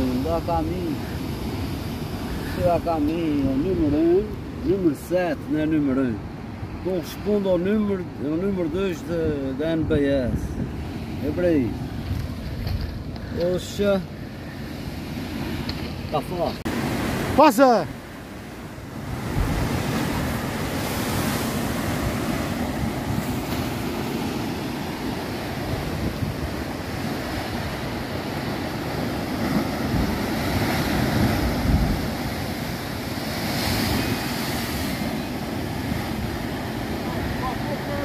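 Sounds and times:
wind buffeting microphone: 0:08.0 - 0:14.0, 0:17.9 - 0:38.0
surf breaking against rocks: 0:14.8 - 0:38.0.

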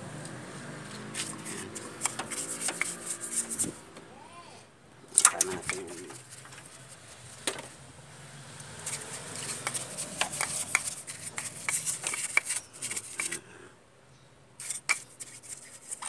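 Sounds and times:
stiff brush scrubbing: 0:00.8 - 0:03.8, 0:05.2 - 0:07.4, 0:08.8 - 0:13.4, 0:14.6 - 0:16.0.

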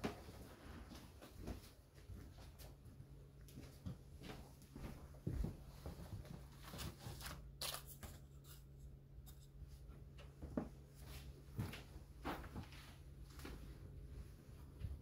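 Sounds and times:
low steady hum: 0:00.0 - 0:15.0
rustling papers: 0:06.2 - 0:08.7.

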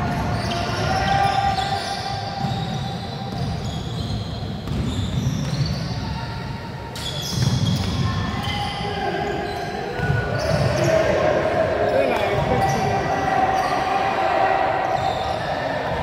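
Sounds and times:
sneaker squeaks: 0:00.0 - 0:14.1, 0:14.8 - 0:16.0
basketball bouncing on wooden floor: 0:04.6 - 0:05.7.

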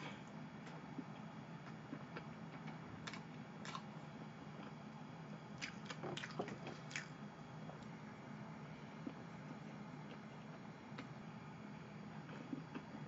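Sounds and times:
low steady hum: 0:00.0 - 0:13.0
chewing with wet mouth clicks: 0:03.0 - 0:03.9, 0:05.6 - 0:07.2.

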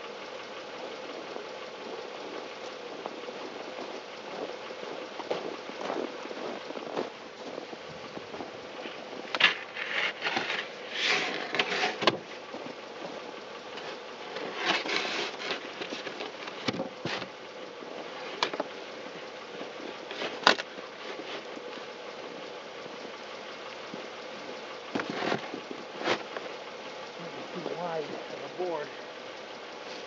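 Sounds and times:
faint steady hum: 0:00.0 - 0:30.0
boots crunching in snow: 0:01.8 - 0:18.2
scraping: 0:01.9 - 0:23.1, 0:23.8 - 0:27.2.

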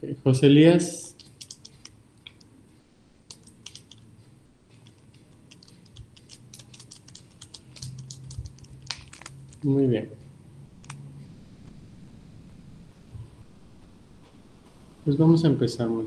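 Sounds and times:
keyboard typing clicks: 0:01.2 - 0:02.5, 0:03.3 - 0:04.0, 0:04.8 - 0:09.6.

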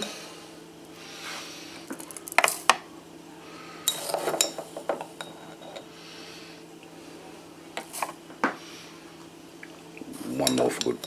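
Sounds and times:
spoon clinking on glass jar: 0:10.4 - 0:11.0.

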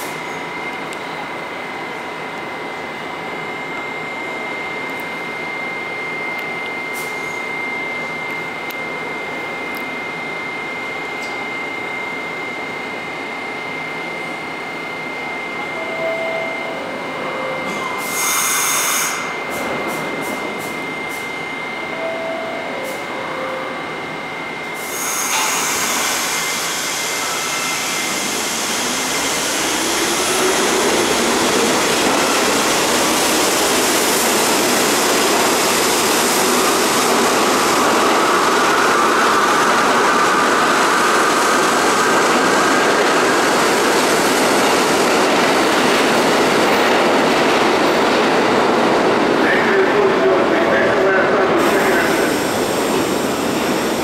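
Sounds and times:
subway train high hum: 0:00.0 - 0:54.0
rising whine: 0:25.8 - 0:46.2.

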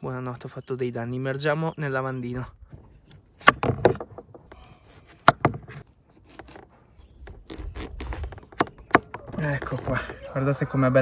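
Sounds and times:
knife scraping through watermelon rind: 0:04.7 - 0:08.4.

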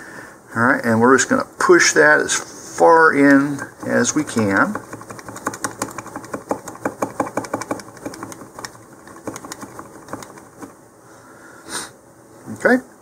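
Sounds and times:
knife handle tapping plastic: 0:03.8 - 0:10.7.

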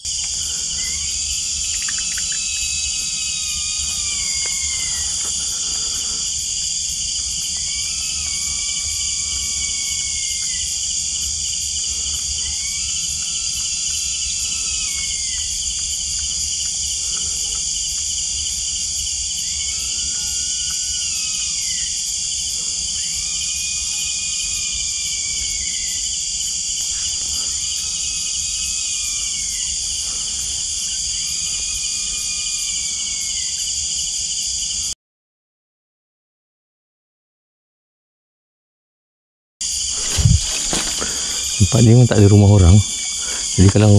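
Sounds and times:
night animal calling: 0:00.0 - 0:17.8, 0:39.9 - 0:43.9
night insects and crickets: 0:00.0 - 0:35.0, 0:39.6 - 0:43.9.

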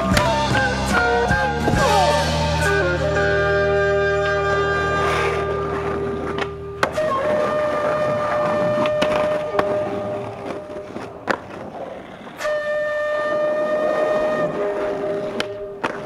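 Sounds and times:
wind instrument background music: 0:00.0 - 0:11.1, 0:12.4 - 0:16.0
skateboard wheels rolling on pavement: 0:03.1 - 0:16.0
skateboard clacking on ground: 0:06.2 - 0:12.4, 0:13.8 - 0:16.0.

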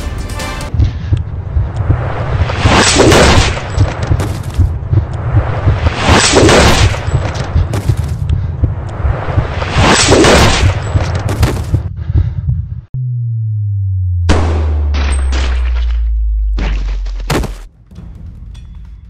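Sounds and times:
big whooshing swells: 0:00.7 - 0:11.3
pulsing bass beat: 0:12.2 - 0:15.0.

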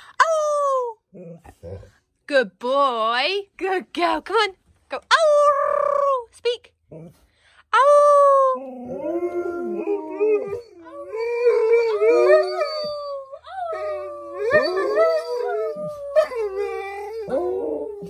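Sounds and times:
dogs howling: 0:08.8 - 0:18.0.

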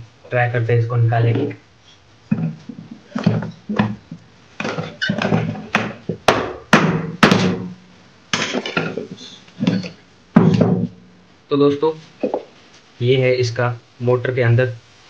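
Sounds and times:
hammer knocking on metal housing: 0:04.6 - 0:07.8, 0:10.4 - 0:11.0.

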